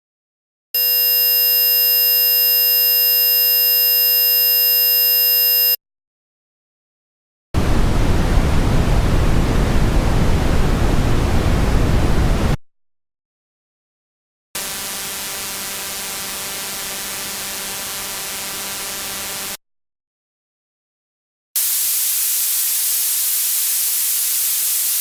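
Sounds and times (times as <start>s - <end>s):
high-pitched square-wave tone: 0.8s - 5.8s, 14.6s - 19.6s
brown noise hiss: 21.7s - 25.0s.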